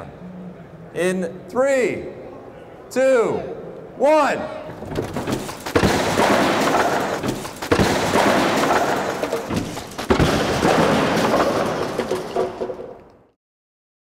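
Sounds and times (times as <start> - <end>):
heavy thuds of falling lumber: 4.8 - 13.1
timber crashing: 4.8 - 13.3.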